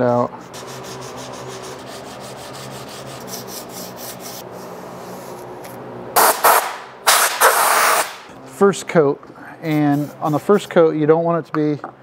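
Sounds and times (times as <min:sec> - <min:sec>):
sandpaper rubbing on metal: 0:00.5 - 0:05.3, 0:09.7 - 0:10.8
spray-paint can hissing: 0:06.2 - 0:08.2.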